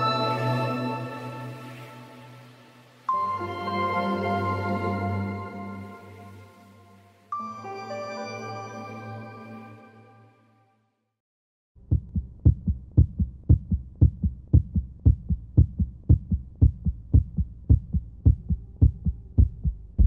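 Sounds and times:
heartbeat-like double thumps: 11.8s - 20.0s.

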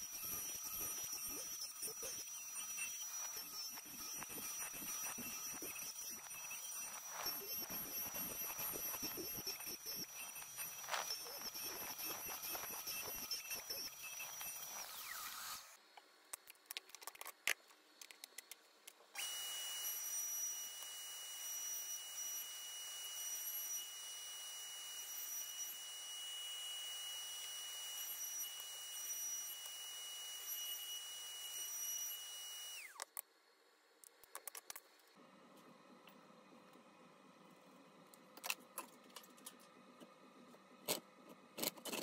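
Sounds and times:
router whining: 0.0s - 15.8s, 19.1s - 33.1s.

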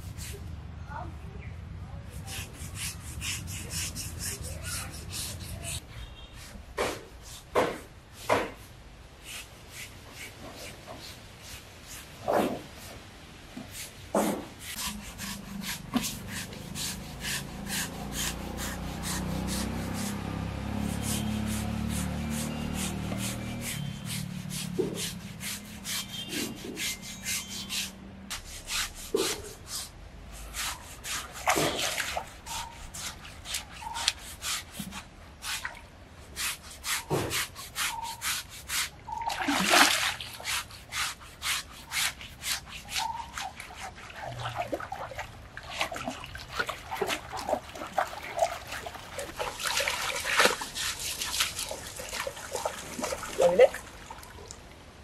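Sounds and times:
coconut husk scrubbing hide: 0.0s - 0.9s, 1.8s - 55.0s
water splashing: 14.6s - 55.0s.

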